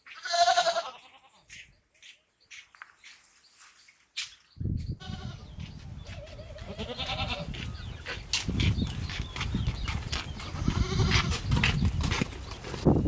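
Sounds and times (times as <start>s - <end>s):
goat bleating: 0.1s - 1.4s, 5.0s - 5.5s, 6.2s - 7.6s, 10.5s - 11.4s.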